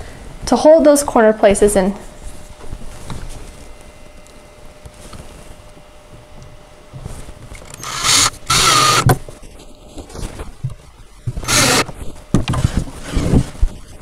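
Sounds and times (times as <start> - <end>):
cordless drill driving screws: 7.6 - 9.1, 11.4 - 11.9.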